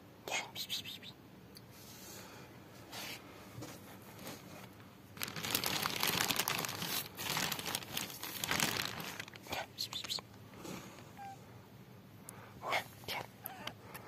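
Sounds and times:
plastic sheeting crinkling: 4.0 - 10.1.

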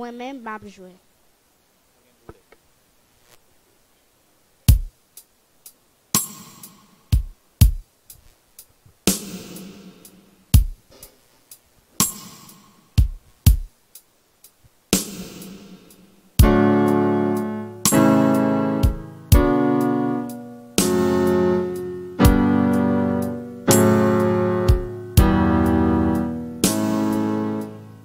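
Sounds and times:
sustained keyboard chord: 16.4 - 28.0
low drum thumps: 18.8 - 19.6, 24.7 - 25.5.

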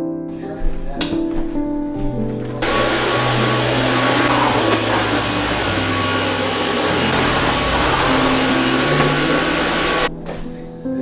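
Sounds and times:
stick vacuum running: 2.6 - 10.1.

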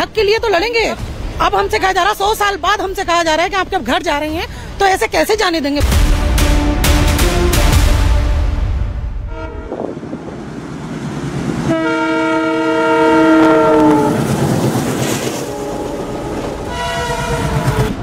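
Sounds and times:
train running noise: 0.0 - 18.0
locomotive horn blasts: 9.2 - 9.8, 11.7 - 14.3, 15.4 - 18.0.

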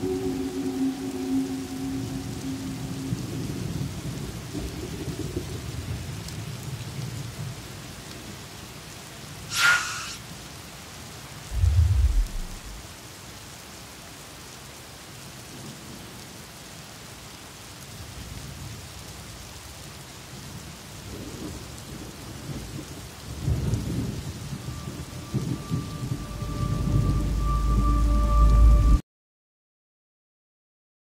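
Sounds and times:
steady held tone: 0.0 - 3.4, 11.5 - 12.8, 24.5 - 29.0
rain on wet pavement: 0.0 - 29.0
low uneven rumble: 11.5 - 12.9.

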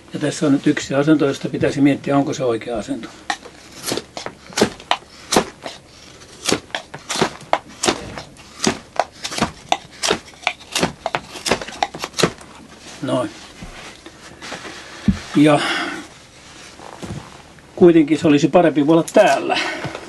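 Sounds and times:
hatchet chopping wood: 3.3 - 12.4.

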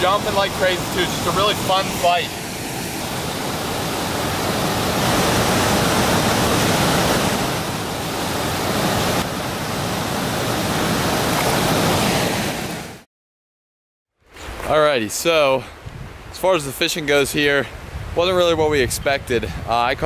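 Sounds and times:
mountain stream and waterfall rushing: 0.0 - 13.0.

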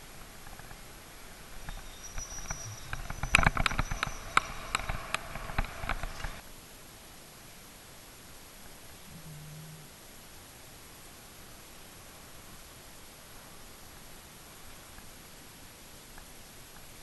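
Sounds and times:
bicycle clattering over tracks: 1.6 - 6.4.

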